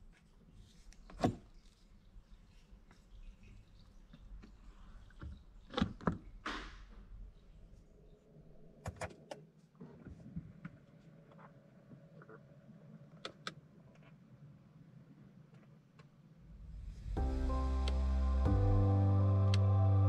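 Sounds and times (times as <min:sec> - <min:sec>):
rush of noise: 0:16.4 - 0:19.2.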